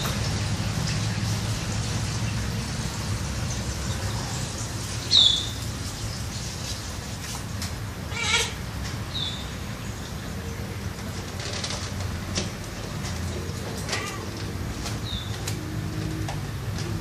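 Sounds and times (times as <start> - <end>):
raspy animal call: 8.1 - 8.6
high animal chirp: 8.1 - 9.5.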